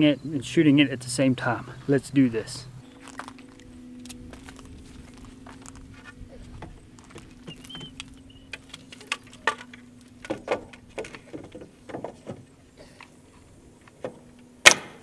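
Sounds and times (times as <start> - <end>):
faint steady hum: 0.0 - 15.0
worker climbing stepladder: 4.4 - 14.8
wooden board knocking and clattering: 8.6 - 12.4.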